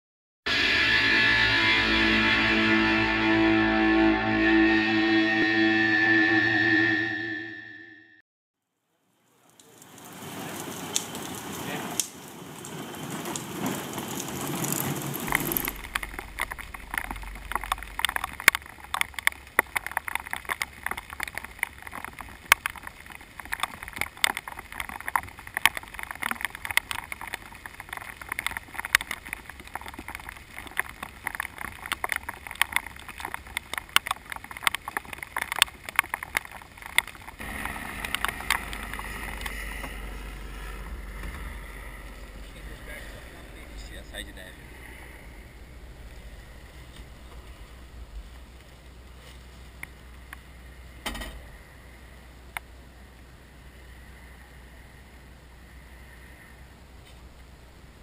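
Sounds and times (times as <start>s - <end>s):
low steady rumble: 0.5s - 7.8s, 14.2s - 31.2s, 37.2s - 58.0s
raindrops ticking on camera housing: 9.1s - 50.9s.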